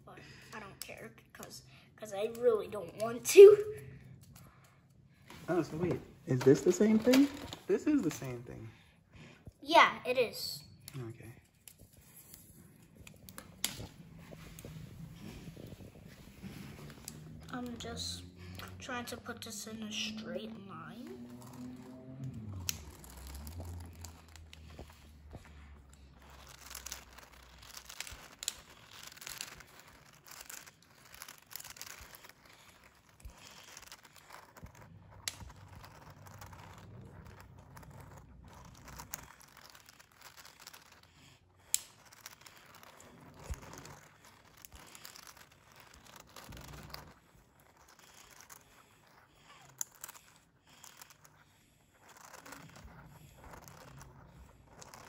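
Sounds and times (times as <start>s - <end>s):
plastic puzzle clicking and rustling: 5.7s - 8.4s, 20.9s - 55.0s.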